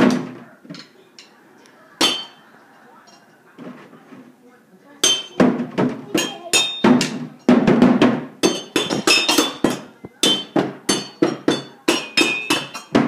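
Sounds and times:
child drumming on metal pots: 0.0 - 1.0, 2.0 - 2.4, 5.0 - 13.0.

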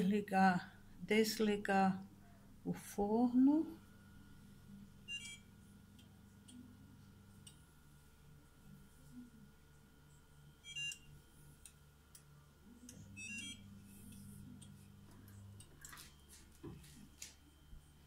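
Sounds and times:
low oven hum: 0.0 - 18.0
short electronic beeps: 13.2 - 13.6.

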